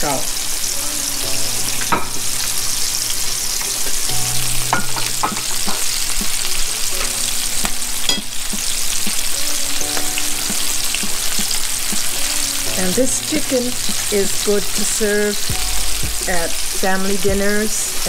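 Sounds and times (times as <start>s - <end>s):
chicken deep frying in oil: 0.0s - 1.0s, 1.6s - 18.0s.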